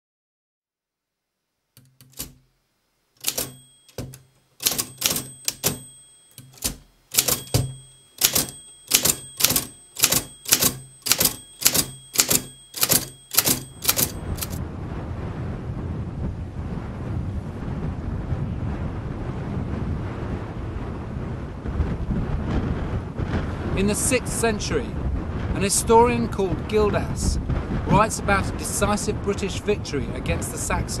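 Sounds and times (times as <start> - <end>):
typewriter keys clicking: 1.8 - 2.4, 3.2 - 14.6.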